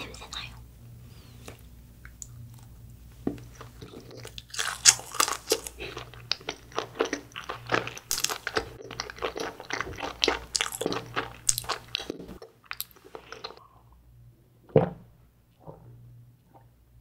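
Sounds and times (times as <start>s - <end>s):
chewing rice cake: 3.4s - 13.6s.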